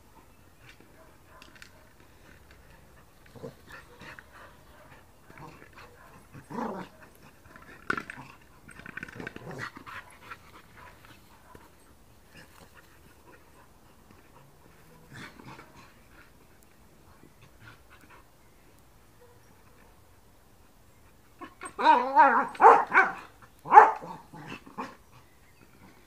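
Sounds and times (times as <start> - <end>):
dog growling: 3.3 - 4.2, 5.3 - 7.0.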